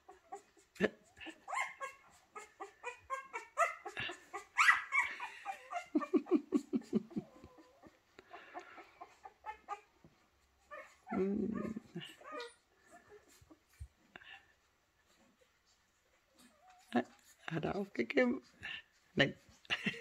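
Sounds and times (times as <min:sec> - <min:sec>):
puppy squeaking and whimpering: 0:00.0 - 0:06.4, 0:08.8 - 0:10.0, 0:10.6 - 0:13.8
puppy grunting: 0:10.7 - 0:13.3.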